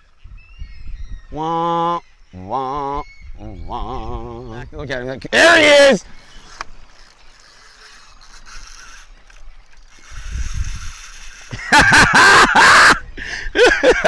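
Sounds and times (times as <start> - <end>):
fishing reel drag clicking: 5.5 - 11.8.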